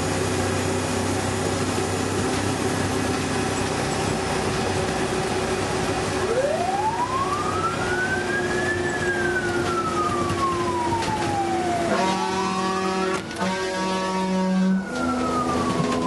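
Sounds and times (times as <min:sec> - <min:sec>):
truck engine and road noise: 0:00.0 - 0:16.0
fire engine siren: 0:05.2 - 0:16.0.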